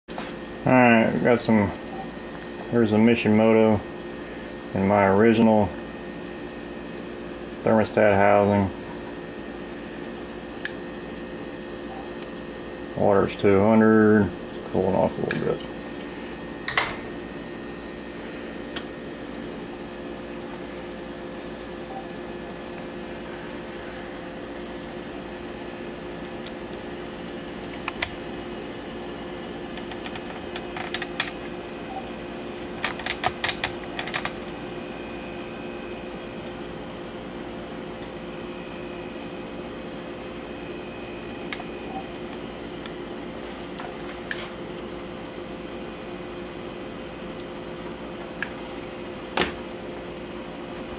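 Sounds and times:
water boiling hum: 0.1s - 50.9s.

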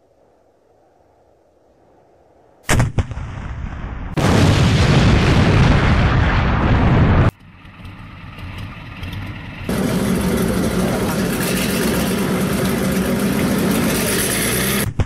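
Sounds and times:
tank cannon shot: 2.7s - 7.3s
heavy rumbling blast: 2.7s - 7.7s, 9.6s - 14.9s.

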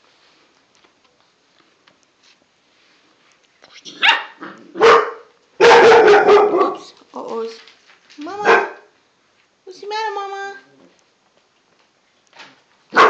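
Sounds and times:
dog barking: 3.9s - 6.9s, 8.4s - 8.9s.

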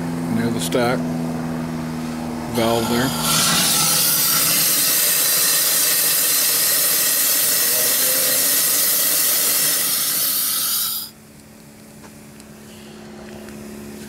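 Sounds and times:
steam hissing: 3.1s - 11.1s.

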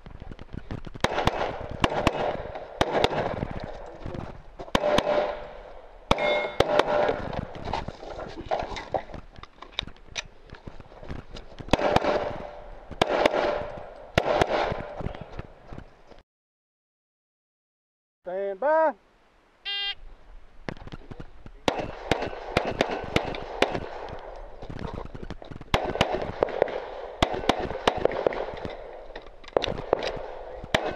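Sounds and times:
handgun shots with echo: 21.7s - 24.2s, 29.5s - 30.9s.

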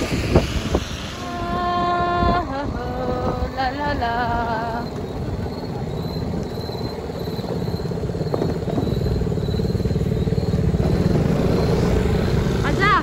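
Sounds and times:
motorbike engine cruising: 0.0s - 13.0s
faint high chirp: 4.8s - 12.6s.

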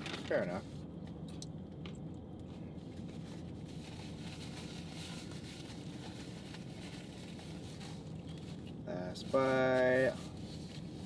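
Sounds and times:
food wrappers rustling: 2.9s - 8.8s.

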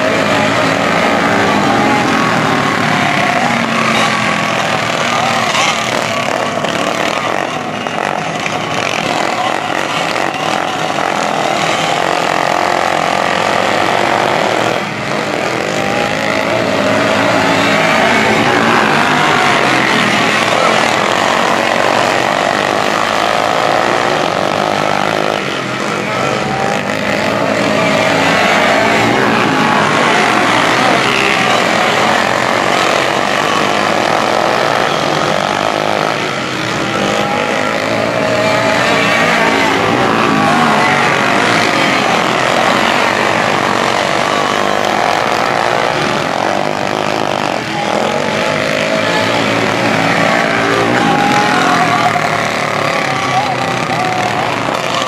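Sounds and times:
racing kart engines revving: 0.0s - 55.0s.

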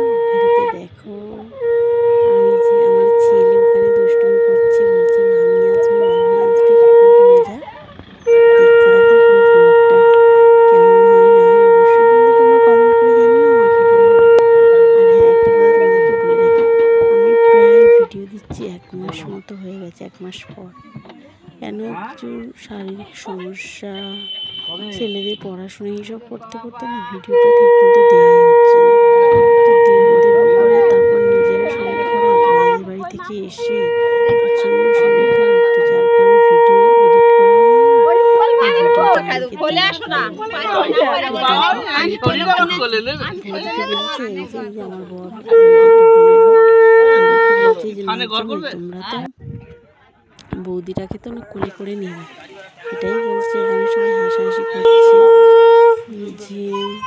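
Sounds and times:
conch shell blasts: 0.0s - 18.2s, 24.0s - 25.4s, 27.3s - 32.9s, 33.6s - 44.2s, 45.4s - 48.6s, 52.6s - 57.0s
faint chattering voices: 0.0s - 57.0s.

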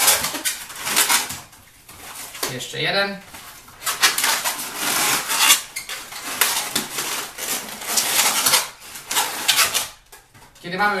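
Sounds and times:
balloon squeaking and rubbing: 0.0s - 2.5s, 3.7s - 10.0s.

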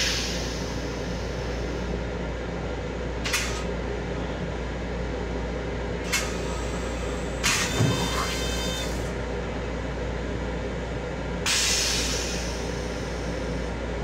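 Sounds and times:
train low rumble and hum: 0.0s - 14.0s
short hisses: 11.5s - 12.8s.

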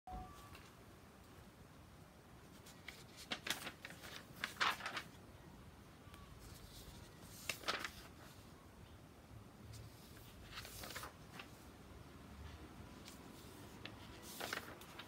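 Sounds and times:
paper sheets rustling: 2.5s - 5.2s, 6.4s - 8.5s, 9.7s - 11.7s, 12.9s - 15.0s.

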